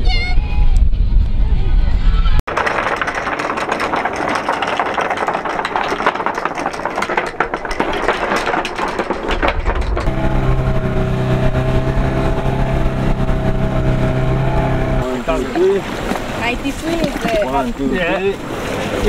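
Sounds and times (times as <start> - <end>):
water noise: 2.5 - 19.0
small outboard motor running: 2.6 - 17.5
rushing wind: 7.5 - 16.7.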